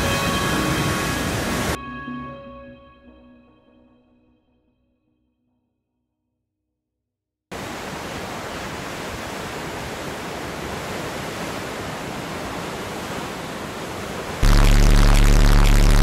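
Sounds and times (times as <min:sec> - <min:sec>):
sea noise: 0:00.0 - 0:01.8, 0:07.5 - 0:16.0
loud deep steady hum: 0:14.4 - 0:16.0.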